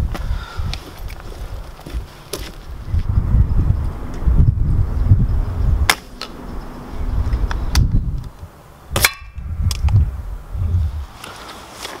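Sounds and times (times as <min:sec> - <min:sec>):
low rumble: 0:02.6 - 0:11.2
pellet striking target: 0:05.9 - 0:06.4.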